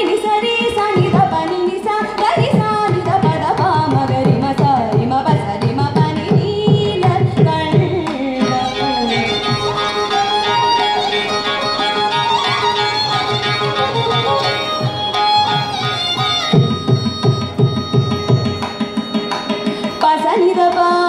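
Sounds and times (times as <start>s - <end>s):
violin melody: 8.4s - 20.9s.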